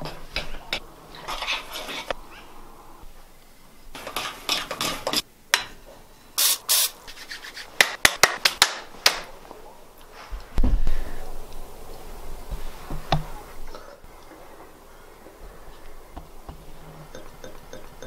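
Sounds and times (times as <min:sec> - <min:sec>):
hands rubbing and handling things: 0:07.0 - 0:08.0.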